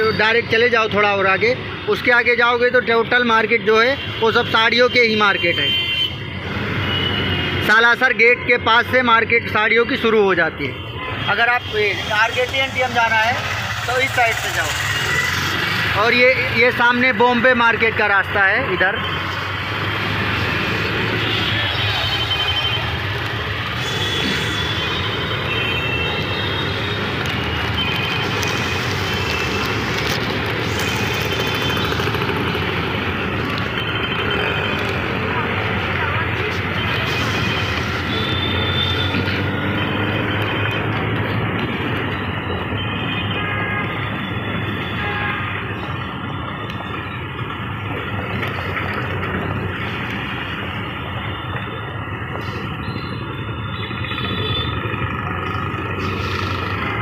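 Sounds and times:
traffic on wet road: 0.0 - 57.0
auto-rickshaw engine running: 12.0 - 18.4, 19.2 - 42.8, 46.6 - 57.0
rain: 27.0 - 38.0.

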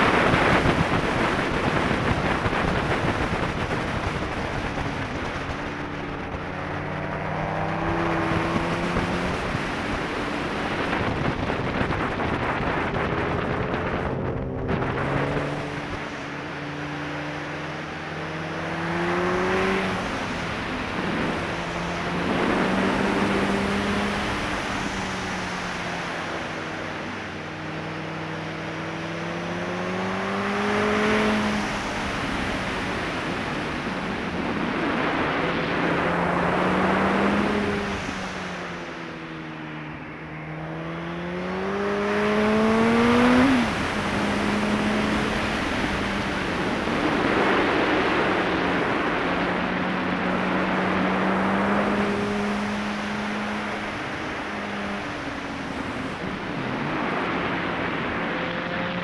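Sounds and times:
wind noise on microphone: 0.0 - 17.8, 18.9 - 27.2, 30.0 - 39.5
motorcycle engine revving: 0.0 - 25.4, 40.4 - 59.0.

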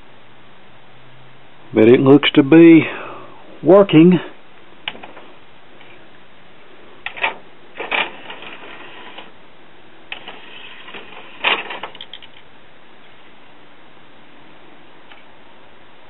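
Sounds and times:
cd tray clicks: 4.8 - 5.2
cd tray clunk: 7.0 - 9.3, 10.1 - 12.3.

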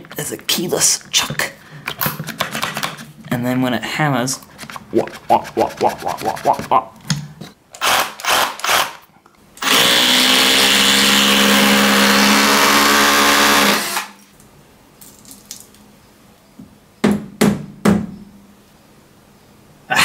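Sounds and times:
hammer drill boring into wall: 7.8 - 9.0, 9.6 - 14.2.

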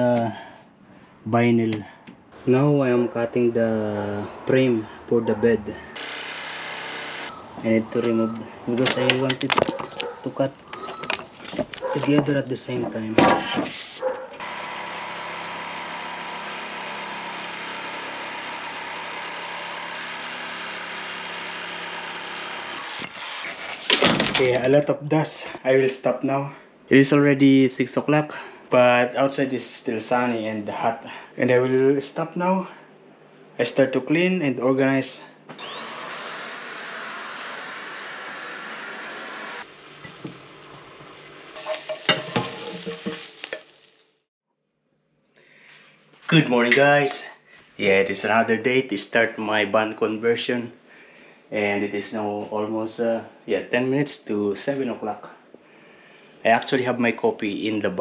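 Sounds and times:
electric jigsaw sawing boards: 6.0 - 7.3, 14.4 - 23.6, 35.5 - 41.6
vacuum cleaner motor whine: 14.4 - 23.1, 35.5 - 41.6
spatula scraping a frying pan: 40.9 - 43.7.

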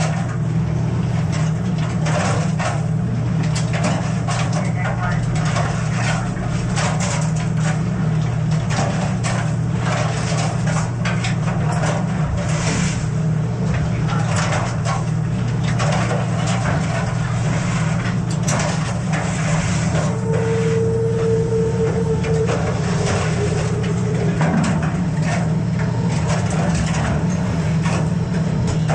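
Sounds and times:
boat engine drone: 0.0 - 28.9
steady high whine: 17.1 - 28.9.

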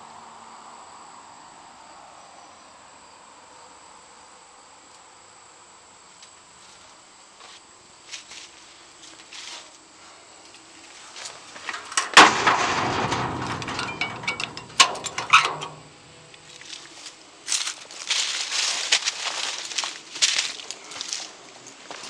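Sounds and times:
metal rattling and scraping: 11.5 - 16.8
metal cover banging shut: 11.7 - 16.5.

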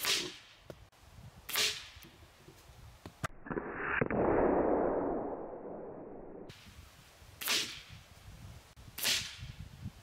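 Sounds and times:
sharp crack: 0.0 - 0.6, 1.5 - 2.1, 7.4 - 7.9, 9.0 - 9.5.

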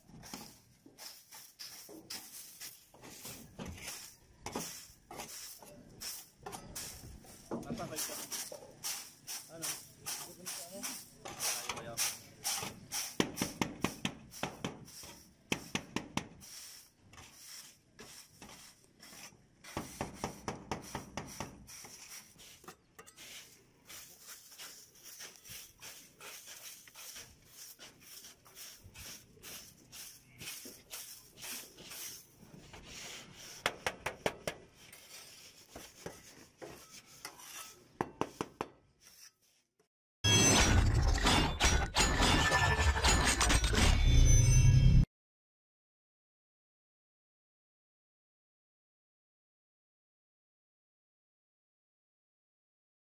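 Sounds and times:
brooms sweeping ash: 0.0 - 39.8
dustpan scraping through ash: 0.1 - 15.8, 16.4 - 33.9, 34.6 - 39.7.

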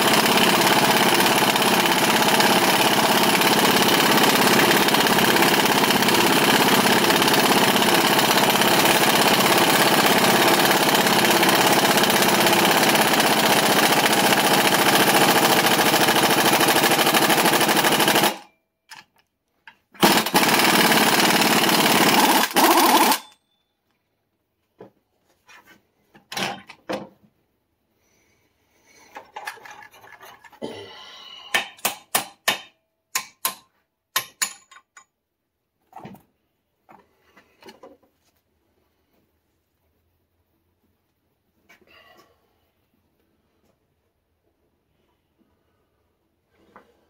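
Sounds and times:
impact wrench hammering: 20.0 - 23.4, 31.5 - 35.0
metal clinks and knocks: 34.2 - 35.2.

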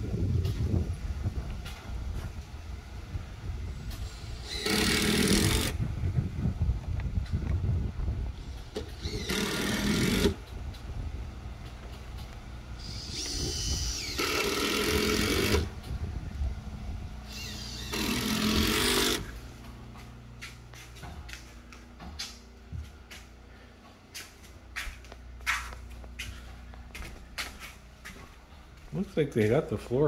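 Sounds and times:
power tool running: 3.7 - 5.9, 8.3 - 10.8, 12.2 - 16.0, 17.2 - 19.7.

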